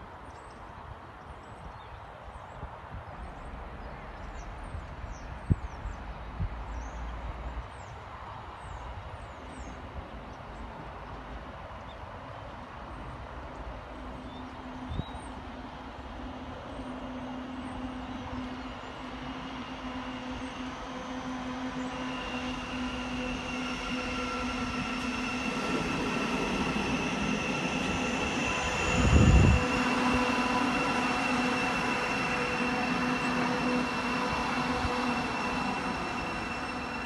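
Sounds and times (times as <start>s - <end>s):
train wheels rumbling and squealing: 2.4s - 37.0s
electric train drive whine: 14.5s - 37.0s.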